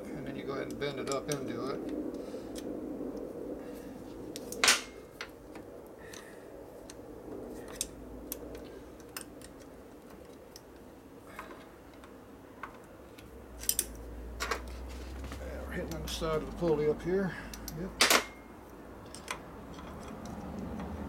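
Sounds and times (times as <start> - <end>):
faint steady hum: 0.0 - 21.0
metallic clicks of hand tools: 11.9 - 14.0, 17.5 - 18.3, 19.0 - 21.0.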